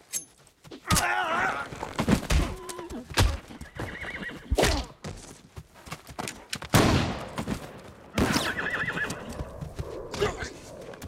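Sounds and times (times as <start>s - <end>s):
horse whinnying: 3.6s - 4.6s, 8.2s - 9.4s.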